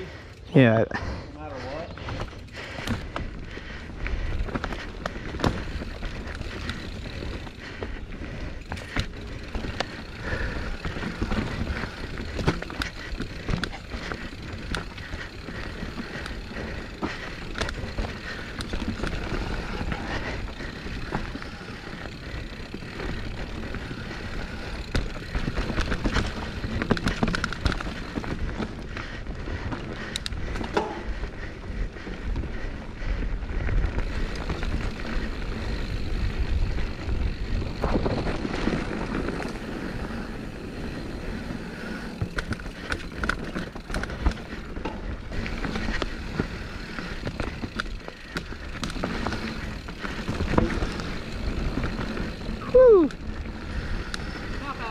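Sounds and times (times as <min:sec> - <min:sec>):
bike rattling and knocking: 0:01.6 - 0:54.9
bike tyres rolling over rock: 0:01.7 - 0:54.9.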